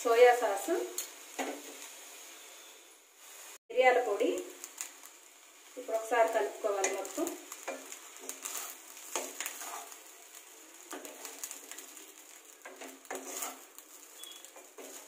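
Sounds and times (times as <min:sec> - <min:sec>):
spatula scraping a pan: 0:06.8 - 0:15.0.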